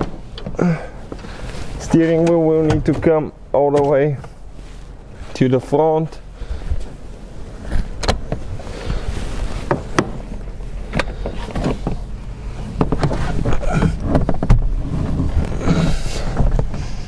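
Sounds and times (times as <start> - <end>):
car seat knocks and scraping: 7.6 - 10.3, 12.8 - 16.8.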